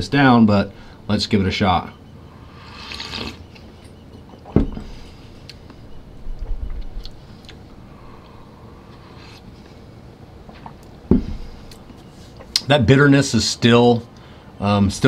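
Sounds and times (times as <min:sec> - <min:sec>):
person sipping drink: 0:02.6 - 0:03.4, 0:07.4 - 0:09.5.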